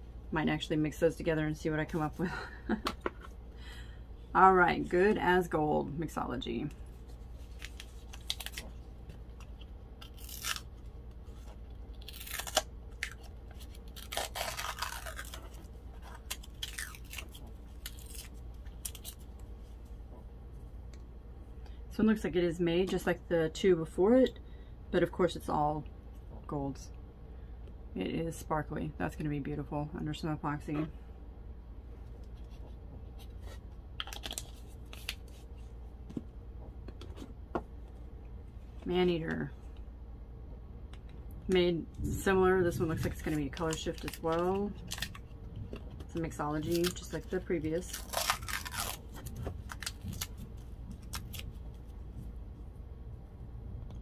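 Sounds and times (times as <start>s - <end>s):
steady low hum: 0.0s - 54.0s
plastic seal crinkling and tearing: 7.4s - 10.9s, 11.9s - 19.3s, 34.0s - 35.4s, 43.0s - 51.8s.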